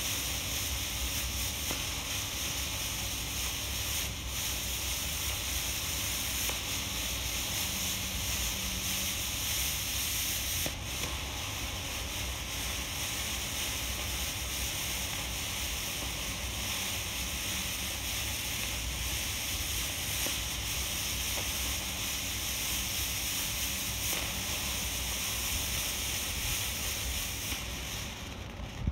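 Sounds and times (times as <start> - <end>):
smoke grenade hissing: 0.0 - 28.9
wind rumble on microphone: 28.5 - 28.9.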